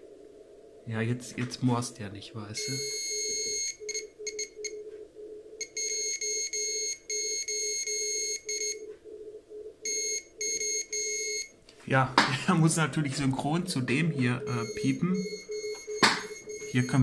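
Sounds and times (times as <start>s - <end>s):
low morse tone: 0.0s - 17.0s
shrill buzzer beeping: 2.6s - 4.5s, 14.3s - 17.0s.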